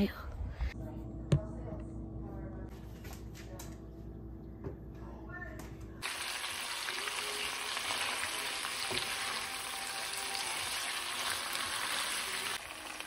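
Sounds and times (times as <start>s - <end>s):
meat sizzling in a frying pan: 6.0s - 13.0s.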